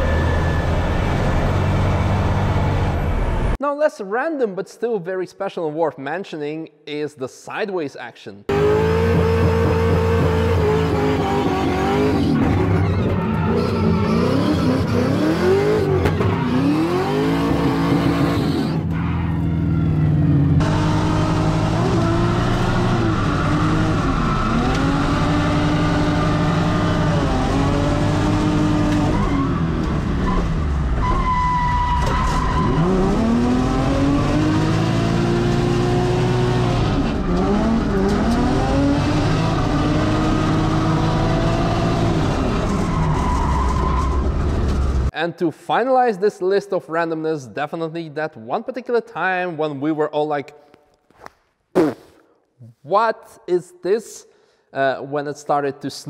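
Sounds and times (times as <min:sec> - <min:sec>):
car engine revving: 0:08.5 - 0:31.1, 0:32.0 - 0:43.3.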